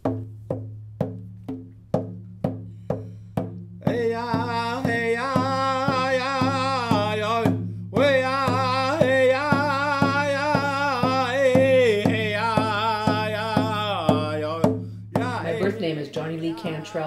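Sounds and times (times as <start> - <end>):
hand drum beaten with stick: 0.0 - 15.9
man singing in a high voice: 3.8 - 15.8.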